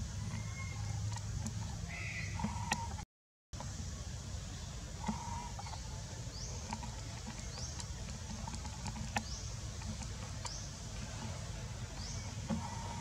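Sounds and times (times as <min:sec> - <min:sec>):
faint clicks: 0:06.6 - 0:12.7.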